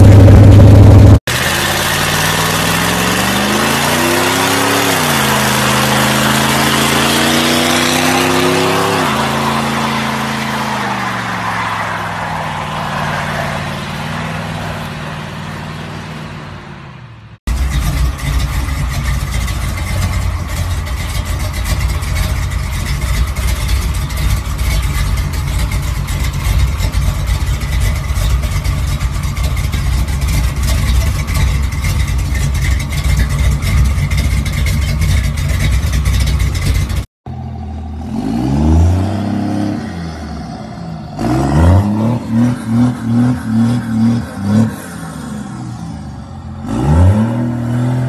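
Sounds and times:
pickup engine idling: 0:00.0 - 0:03.6, 0:13.6 - 0:38.0
truck engine revving: 0:00.0 - 0:48.0.

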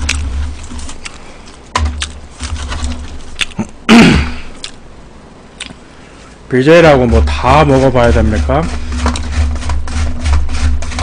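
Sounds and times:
chewing with crunches: 0:00.0 - 0:03.8, 0:04.5 - 0:04.8, 0:05.6 - 0:05.8
mouth clicks: 0:03.4 - 0:04.8, 0:05.6 - 0:05.8
loud grunt: 0:03.6 - 0:04.5.

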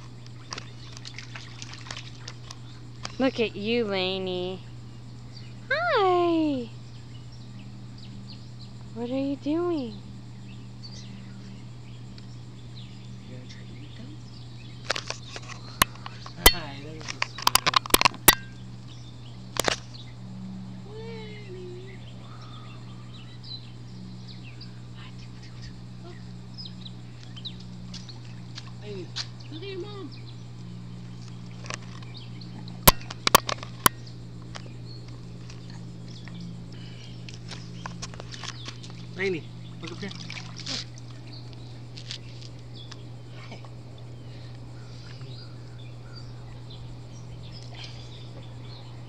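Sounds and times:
steady low hum: 0:00.0 - 0:49.0
faint bird chirps: 0:20.9 - 0:30.4, 0:38.5 - 0:49.0.

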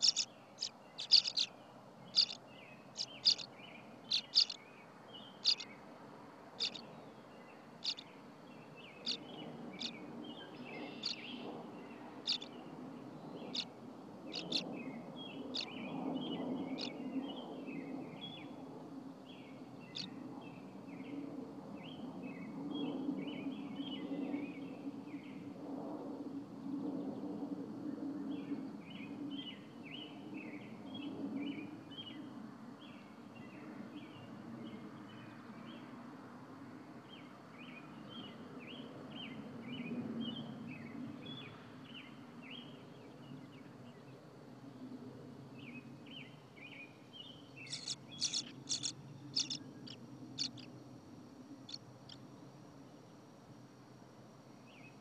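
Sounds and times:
swallows chirping: 0:00.0 - 0:05.7, 0:06.6 - 0:12.7, 0:14.3 - 0:17.0, 0:46.1 - 0:53.1
low steady hum: 0:00.0 - 0:22.2, 0:39.2 - 0:55.0.

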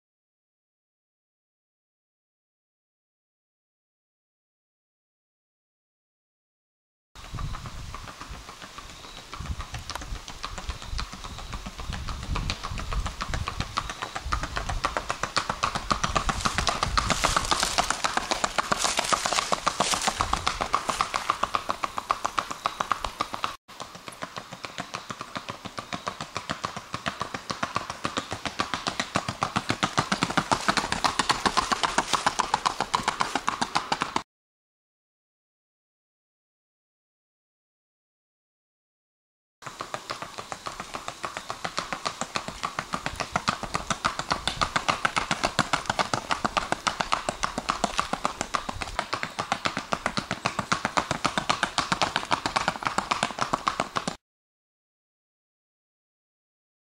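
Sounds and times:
hooves clip-clopping on pavement: 0:07.2 - 0:34.2, 0:39.6 - 0:54.2.

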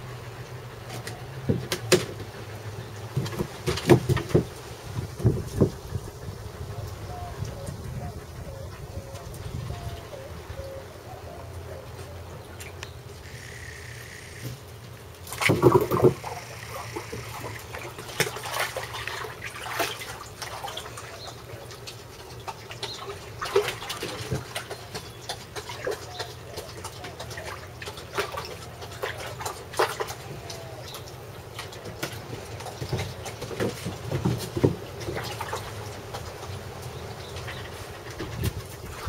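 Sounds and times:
water splashing as dogs wade: 0:14.6 - 0:39.0.

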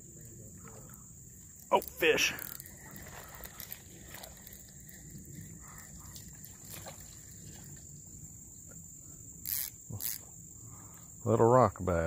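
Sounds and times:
high-pitched insect chorus: 0:00.0 - 0:12.0
fishing reel ticking: 0:01.6 - 0:06.8, 0:09.4 - 0:10.2.

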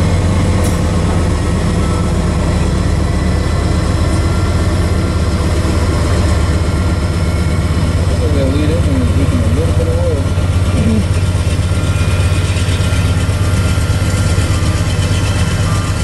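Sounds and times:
diesel locomotive engines droning: 0:00.0 - 0:16.0.

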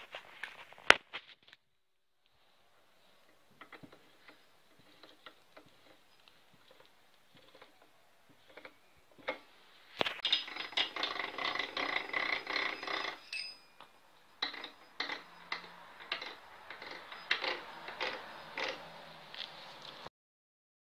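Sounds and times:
metal gear clicking and rattling: 0:10.0 - 0:13.7.

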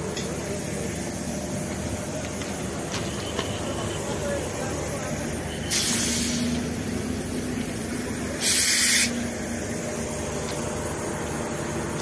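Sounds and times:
compressed air hissing: 0:05.7 - 0:06.7, 0:08.0 - 0:10.1.

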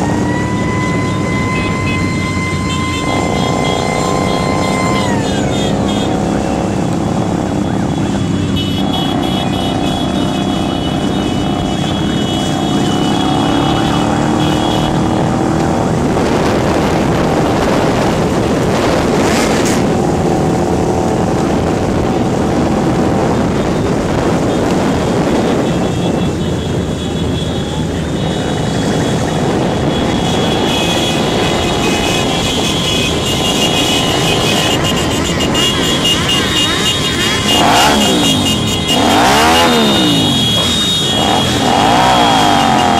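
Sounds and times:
motorcycle engines revving: 0:00.0 - 0:42.9
rushing wind noise: 0:10.0 - 0:42.9.

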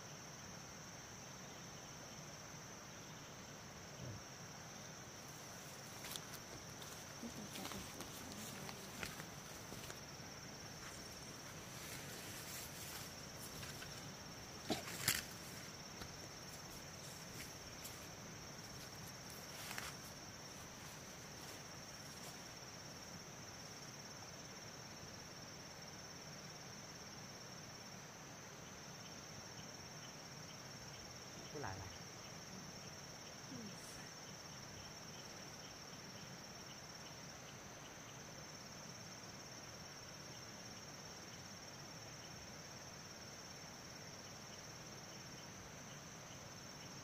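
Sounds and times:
insects chirring: 0:00.0 - 0:47.0.

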